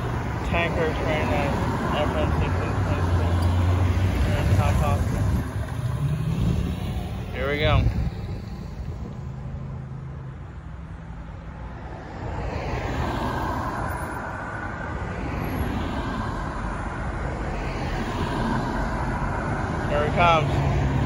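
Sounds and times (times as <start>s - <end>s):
low traffic rumble: 0.0s - 21.0s
car passing close by: 11.7s - 21.0s.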